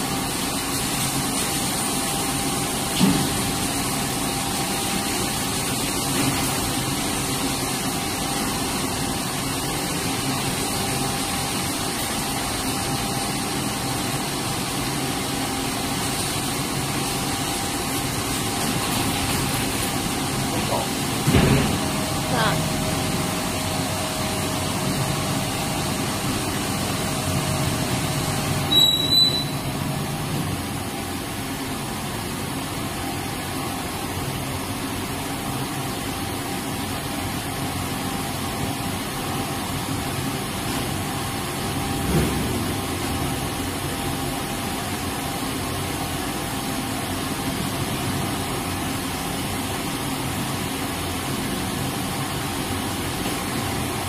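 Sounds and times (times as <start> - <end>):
furnace machine hum: 0.0 - 54.0
thump: 21.3 - 21.8.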